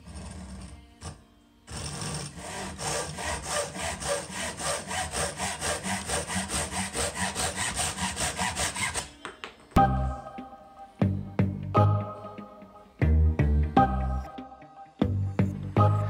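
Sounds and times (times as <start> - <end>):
hand saw cutting wood: 0.0 - 9.2
music: 0.0 - 16.0.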